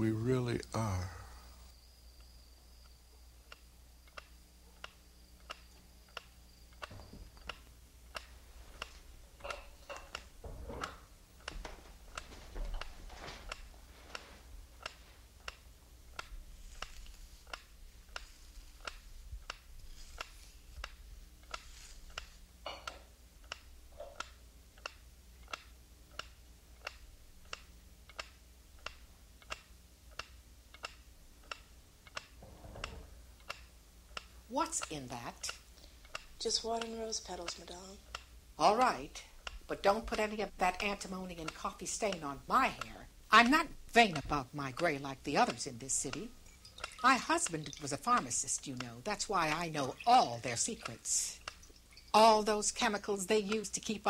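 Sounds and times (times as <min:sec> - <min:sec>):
clock ticking: 0:02.8 - 0:54.0
soft handling sounds: 0:08.3 - 0:15.5, 0:16.4 - 0:23.1.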